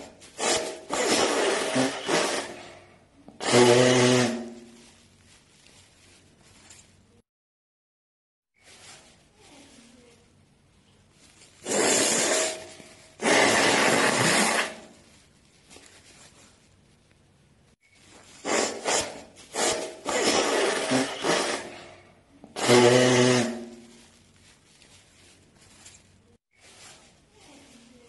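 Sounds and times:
person blowing nose: 0:00.0 - 0:02.8, 0:03.4 - 0:04.8, 0:11.6 - 0:15.0, 0:18.4 - 0:24.0.

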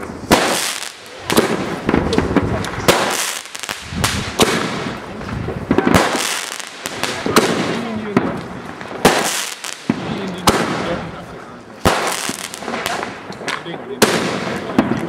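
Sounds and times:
fireworks banging: 0:00.0 - 0:15.0
fireworks hissing and crackling: 0:00.0 - 0:15.0.

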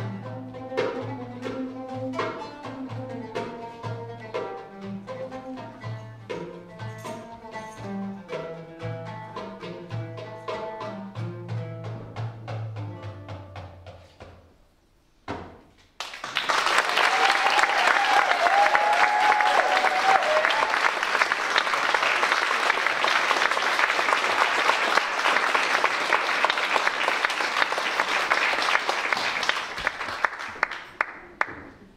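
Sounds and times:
audience applauding and cheering: 0:16.0 - 0:31.9
high wavering cheer: 0:16.8 - 0:21.3.

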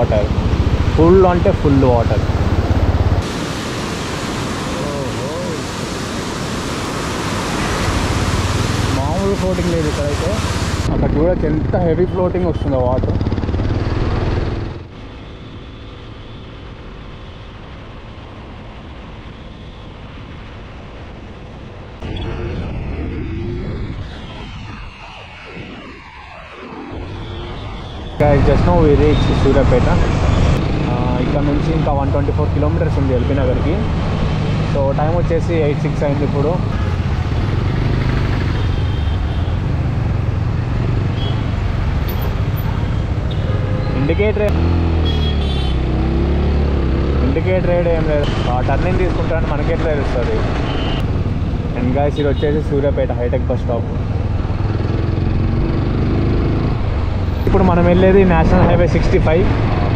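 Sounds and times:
tyre road noise: 0:00.0 - 0:59.9
motorcycle engine cruising: 0:12.8 - 0:14.9, 0:44.5 - 0:47.4, 0:54.0 - 0:57.4
wind rush: 0:21.2 - 0:32.6, 0:53.4 - 0:59.9.

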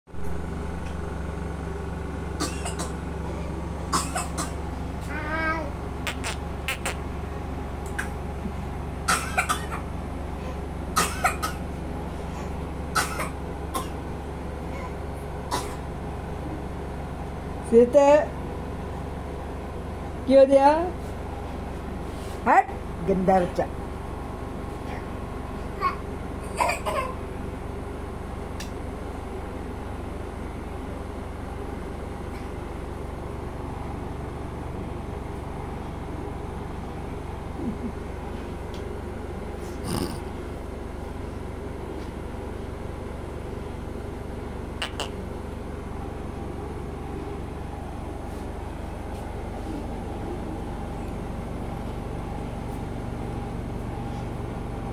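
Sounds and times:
steady low hum: 0:00.1 - 0:54.9
toddler coughing: 0:02.4 - 0:02.9, 0:03.9 - 0:04.6, 0:09.0 - 0:09.9, 0:11.0 - 0:11.6, 0:12.9 - 0:14.0, 0:15.5 - 0:15.8, 0:25.8 - 0:27.2
toddler vocal sound: 0:05.0 - 0:05.8.

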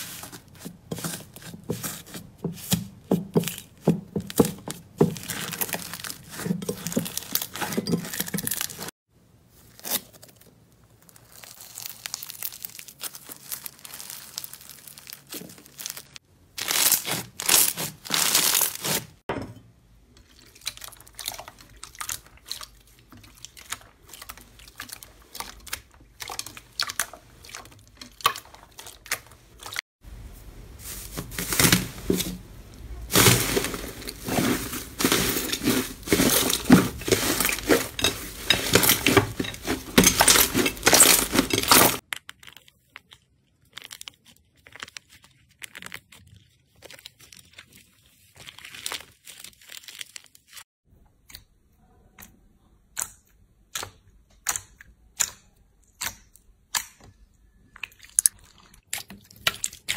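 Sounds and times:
slime crackling and squishing: 0:00.0 - 0:19.3, 0:20.2 - 0:50.6.

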